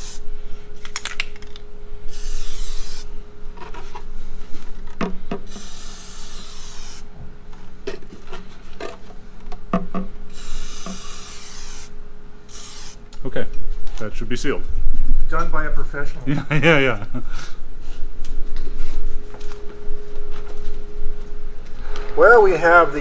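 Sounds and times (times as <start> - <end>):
aerosol can spraying: 0.0 - 0.2, 2.1 - 3.1, 5.5 - 7.0, 10.3 - 11.9, 12.5 - 13.0.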